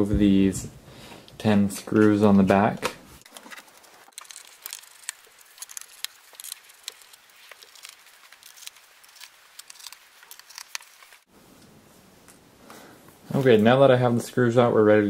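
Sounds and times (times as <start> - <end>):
screwdriver clicks and scrapes: 3.2 - 11.2.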